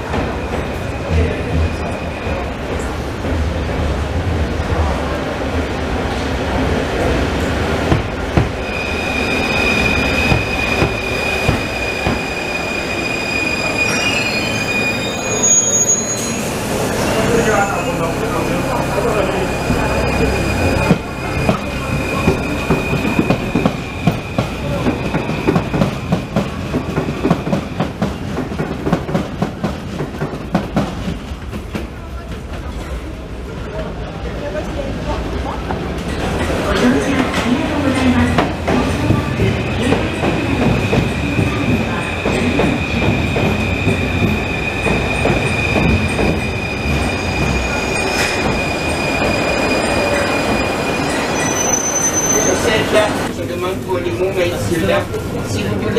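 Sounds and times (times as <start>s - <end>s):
thin high train whine: 6.0s - 33.1s, 36.4s - 55.9s.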